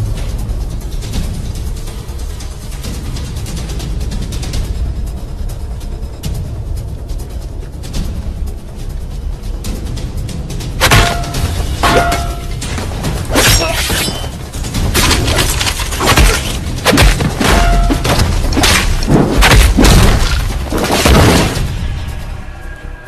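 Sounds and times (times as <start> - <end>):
music: 0.0 - 23.0
loud crashes and shattering: 14.9 - 21.8.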